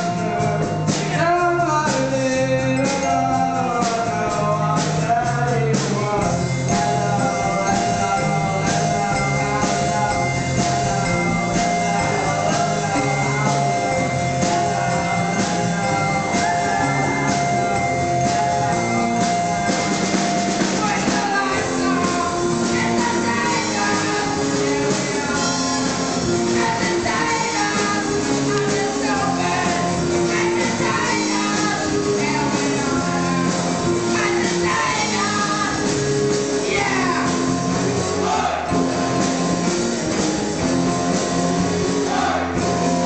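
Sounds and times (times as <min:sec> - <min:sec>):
bass guitar: 0:00.0 - 0:43.0
drum kit beat: 0:00.0 - 0:43.0
electric guitars: 0:05.9 - 0:43.0
boy singing into a microphone: 0:26.6 - 0:33.5.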